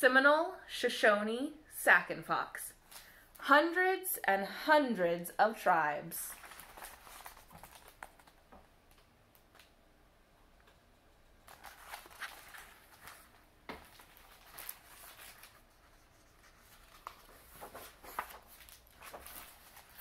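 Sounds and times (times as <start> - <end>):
book page rustling: 6.3 - 8.4, 11.5 - 20.0.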